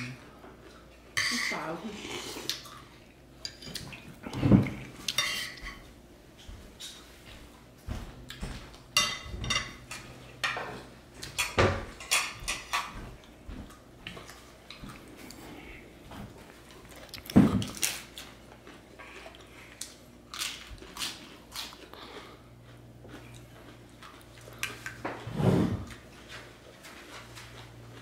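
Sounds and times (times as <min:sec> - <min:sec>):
cutlery and dishes clinking: 0:05.1 - 0:05.8, 0:09.0 - 0:13.0.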